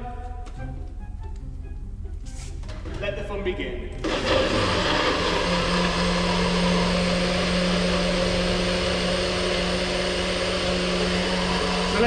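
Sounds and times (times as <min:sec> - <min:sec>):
blender running: 0:04.0 - 0:12.0.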